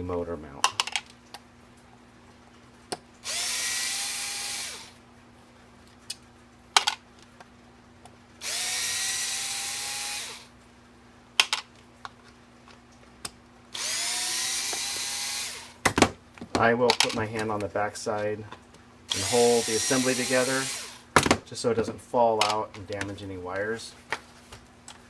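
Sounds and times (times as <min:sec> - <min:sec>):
electric screwdriver motor whine: 0:03.2 - 0:05.0, 0:08.4 - 0:10.5, 0:13.8 - 0:15.8, 0:19.1 - 0:21.0.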